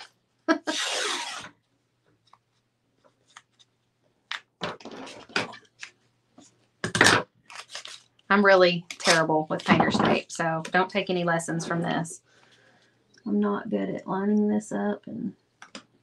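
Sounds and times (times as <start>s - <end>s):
tape ripping off roll: 0.7s - 1.6s.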